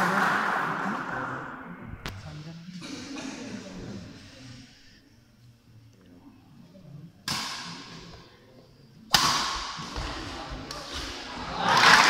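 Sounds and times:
spectators cheering and clapping: 11.4s - 12.0s.

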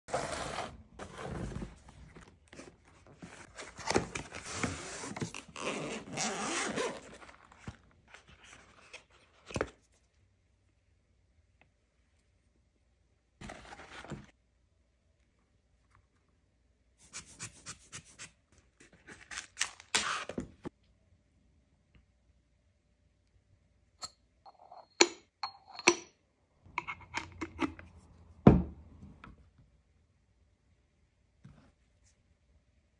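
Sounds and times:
cardboard and paper rustling: 0.1s - 5.6s, 7.0s - 9.8s, 13.4s - 14.3s
zipper being pulled open: 4.7s - 7.3s
grinder thud on wooden table: 28.5s - 28.8s.

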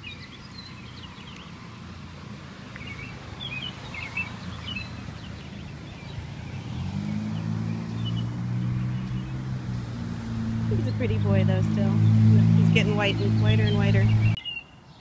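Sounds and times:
vehicle engine hum: 0.0s - 14.4s
low outdoor noise: 0.0s - 15.0s
small birds chirping: 0.0s - 15.0s.

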